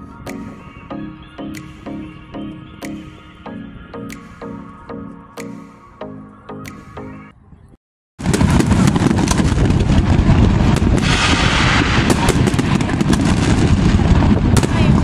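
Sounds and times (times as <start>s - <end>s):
music notes: 0.0s - 7.3s
fireworks bangs and crackling: 8.2s - 15.0s.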